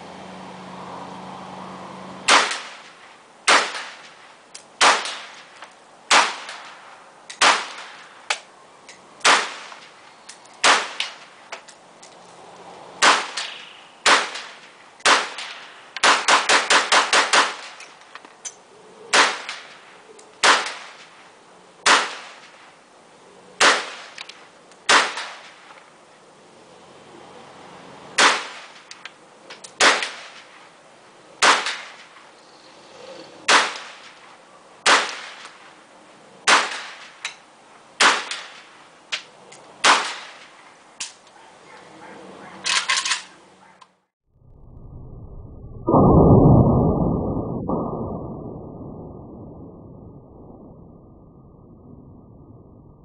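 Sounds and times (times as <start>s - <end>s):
pistol gunshots: 2.3s - 2.9s, 9.2s - 9.7s, 10.6s - 11.1s.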